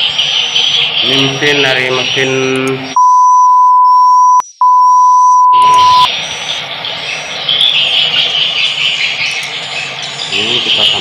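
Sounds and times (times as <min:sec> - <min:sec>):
loud beep tone: 0:02.9 - 0:06.1.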